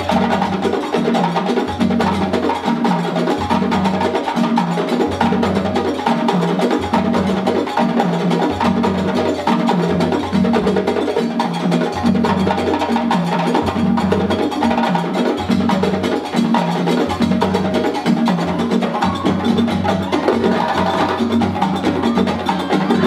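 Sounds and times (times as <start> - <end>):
djembe strokes: 0.0 - 23.0
low dunun drum tone: 18.3 - 23.0.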